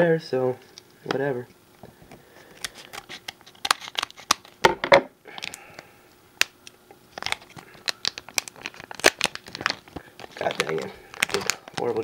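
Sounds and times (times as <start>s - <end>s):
wrapper crinkling and tearing: 2.5s - 4.6s, 7.1s - 12.0s.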